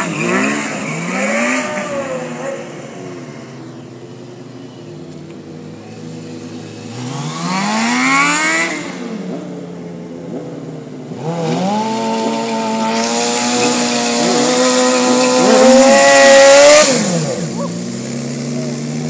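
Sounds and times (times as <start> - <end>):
motorcycle engine revving: 0.0 - 4.4, 5.2 - 19.0
tyre spinning in burnout: 11.8 - 17.8.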